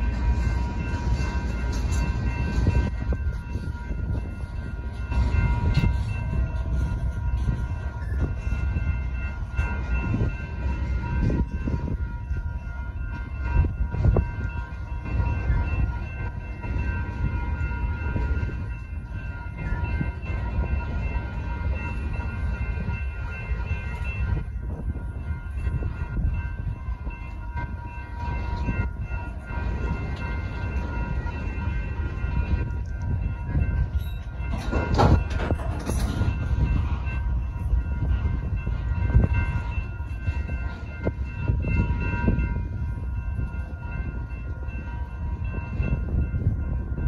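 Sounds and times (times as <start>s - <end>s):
crossing signal bells ringing: 0.0s - 47.0s
train wheels rumbling on rail: 0.0s - 47.0s
freight cars clanking: 34.4s - 36.6s.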